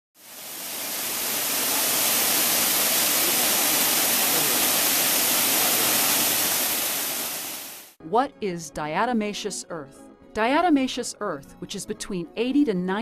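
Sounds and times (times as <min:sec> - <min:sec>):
waterfall rushing: 0:00.2 - 0:08.0.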